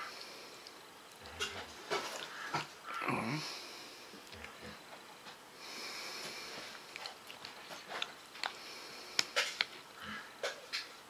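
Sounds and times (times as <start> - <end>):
chewing: 0.5 - 3.0, 4.1 - 4.8, 6.2 - 10.9
person breathing: 3.1 - 4.9, 5.5 - 7.0, 8.4 - 10.4.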